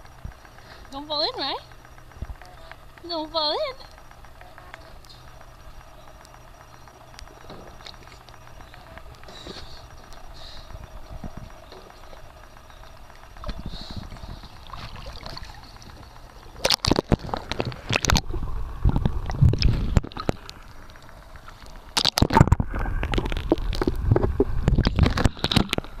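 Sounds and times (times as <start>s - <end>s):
water splashing and gurgling: 13.4s - 26.0s.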